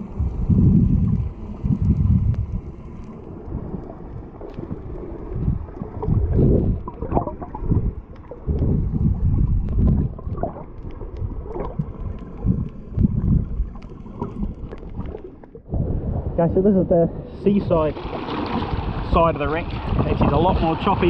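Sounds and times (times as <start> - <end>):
muffled water sloshing and gurgling: 0.0 - 21.0
faint clicks: 1.4 - 6.2, 6.8 - 15.6.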